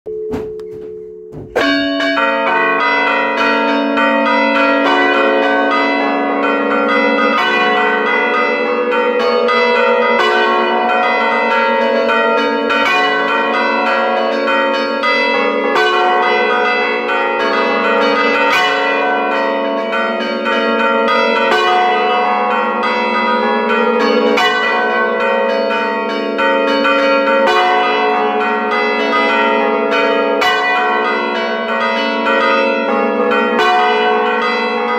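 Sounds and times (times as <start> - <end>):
bell humming: 0.1 - 3.0
church bells pealing: 0.1 - 34.9.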